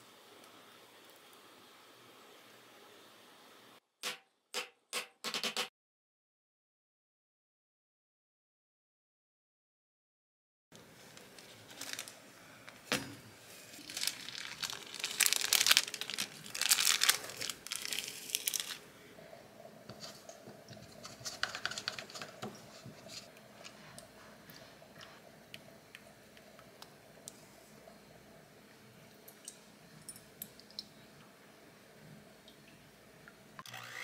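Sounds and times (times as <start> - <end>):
faint steady hum: 0.0 - 3.8, 10.8 - 34.0
wrapping material crinkling: 10.8 - 12.3, 13.5 - 18.8.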